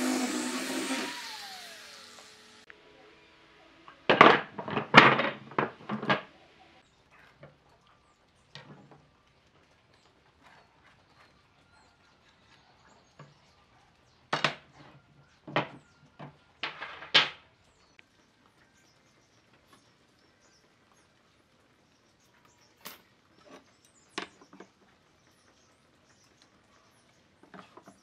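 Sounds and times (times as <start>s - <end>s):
boards knocking on wooden workbench: 4.1s - 6.3s, 15.5s - 17.4s.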